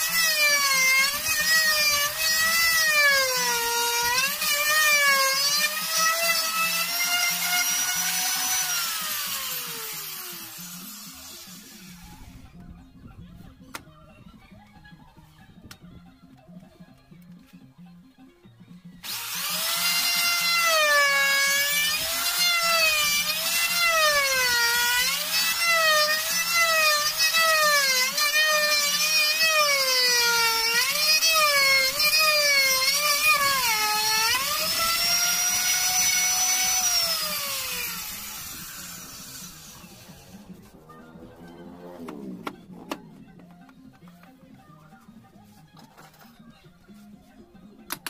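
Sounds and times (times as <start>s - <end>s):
electric router whining: 0.0s - 12.4s, 19.0s - 43.8s.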